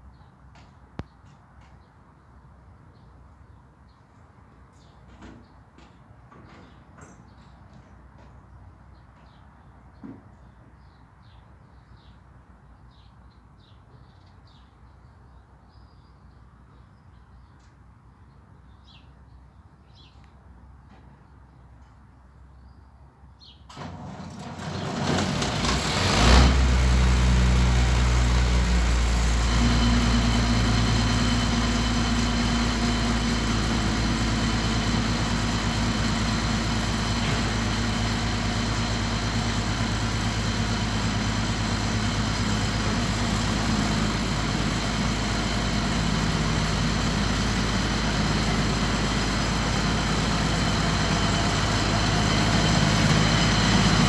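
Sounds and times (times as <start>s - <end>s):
diesel engine starting and idling: 23.7s - 54.0s.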